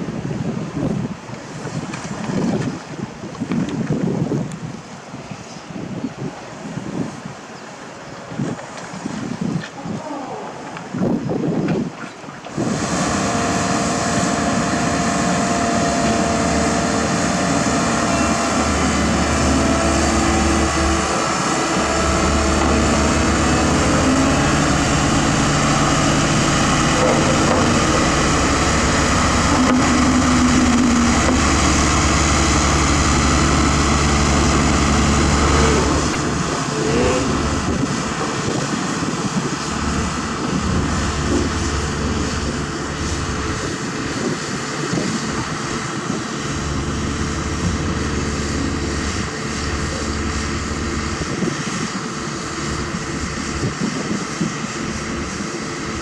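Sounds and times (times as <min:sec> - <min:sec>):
diesel engines droning: 0:12.5 - 0:56.0.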